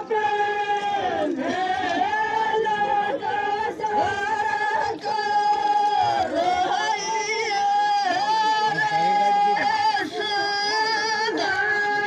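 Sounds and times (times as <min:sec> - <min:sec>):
women singing folk song: 0:00.0 - 0:12.0.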